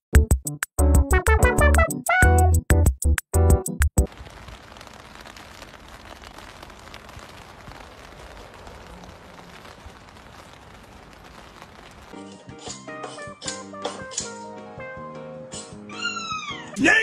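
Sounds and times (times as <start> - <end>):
rain pattering on paving stones: 4.0 - 13.6.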